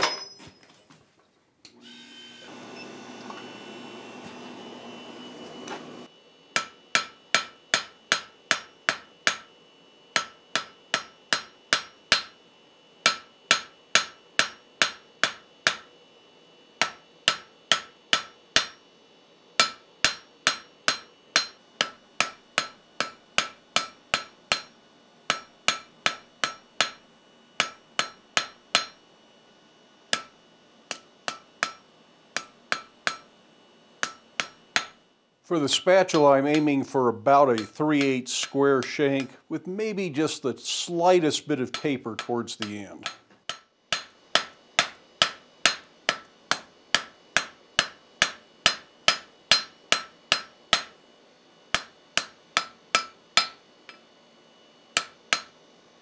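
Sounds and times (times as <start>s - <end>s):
hammer ringing on anvil: 0.0s - 0.6s, 6.6s - 9.5s, 10.1s - 12.4s, 13.0s - 15.9s, 16.8s - 18.8s, 19.6s - 27.0s, 27.6s - 29.0s, 30.1s - 33.3s, 34.0s - 35.0s, 35.7s - 36.8s, 37.5s - 39.4s, 41.7s - 51.0s, 51.7s - 54.0s, 55.0s - 55.5s
forge hum: 1.6s - 12.3s, 19.6s - 29.1s, 30.1s - 51.0s.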